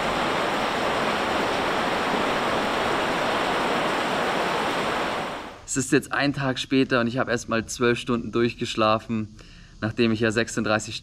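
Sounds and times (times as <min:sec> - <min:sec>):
heavy rain pouring: 0:00.0 - 0:05.7.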